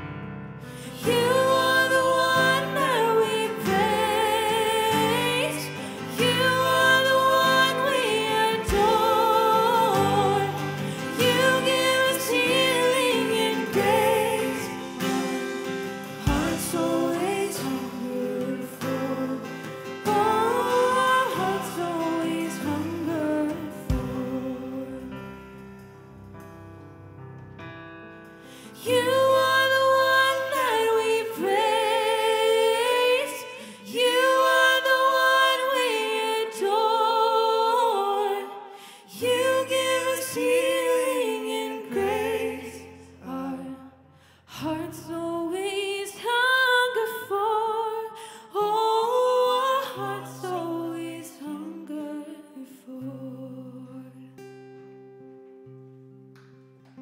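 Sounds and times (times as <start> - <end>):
band with acoustic guitar: 0.0 - 35.5, 54.4 - 57.0
person singing with vibrato: 0.6 - 25.6, 28.5 - 54.4.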